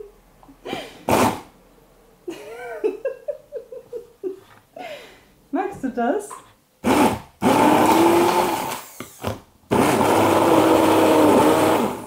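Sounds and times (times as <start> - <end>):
electric blender running: 6.8 - 12.0.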